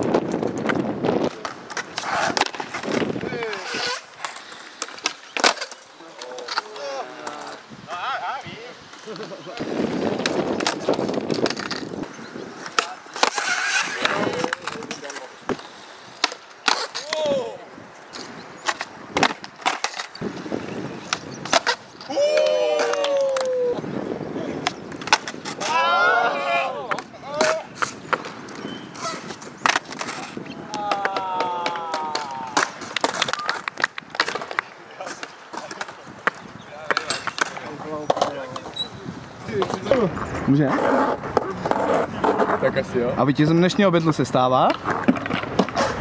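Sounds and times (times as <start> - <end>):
skateboard popping and landing: 0.0 - 7.6, 9.1 - 17.6, 18.2 - 23.5, 24.6 - 38.9, 44.6 - 46.0
skateboard wheels rolling on concrete: 0.0 - 46.0
person shouting: 22.1 - 23.8, 25.6 - 27.6, 30.6 - 32.6.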